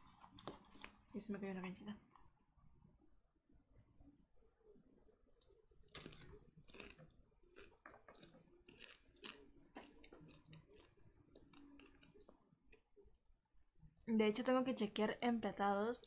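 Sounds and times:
faint crunching of chewing: 0.0s - 1.2s, 2.0s - 3.0s, 3.8s - 13.2s.

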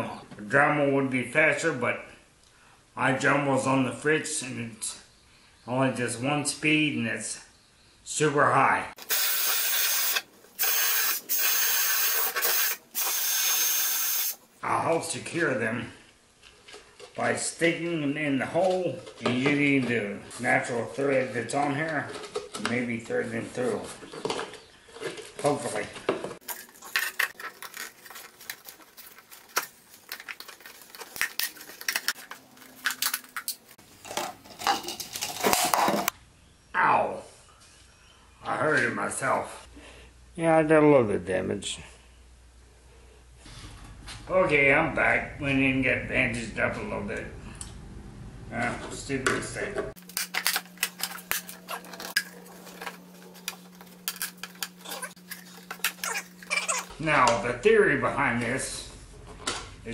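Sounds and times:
plastic bottles crinkling: 26.4s - 36.1s, 50.0s - 56.9s.

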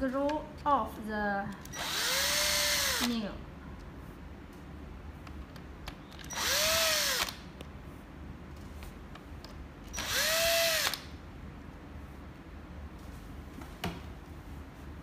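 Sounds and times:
cordless drill motor whine: 1.7s - 3.1s, 6.3s - 7.3s, 9.9s - 11.1s.

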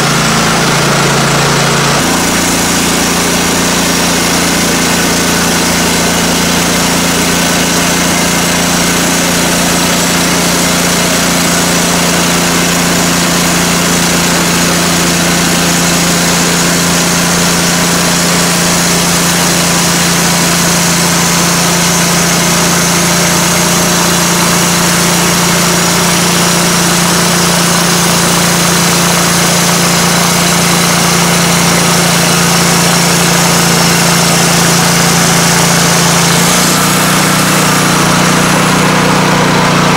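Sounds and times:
band saw blade cutting log: 0.0s - 39.9s
sawmill engine hum: 0.0s - 39.9s.

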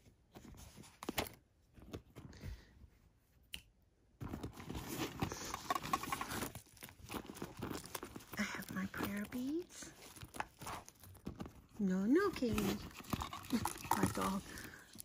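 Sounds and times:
hand rummaging through pouches: 4.2s - 15.0s.

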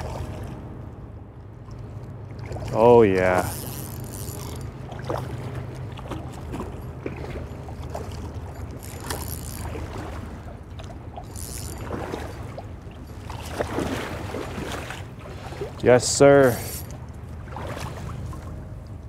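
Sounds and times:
steady low hum: 0.0s - 19.0s
fish thrashing in water: 2.3s - 15.8s.

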